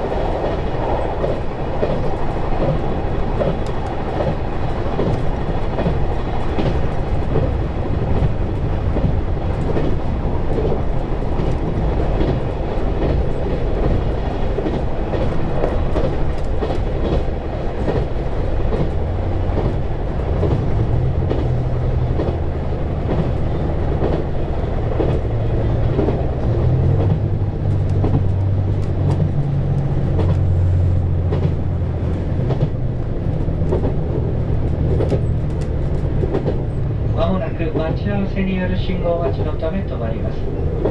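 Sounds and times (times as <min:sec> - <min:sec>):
wheels on rails: 0:00.0 - 0:38.0
diesel railcar engine: 0:00.0 - 0:40.9
low engine hum: 0:00.0 - 0:40.9.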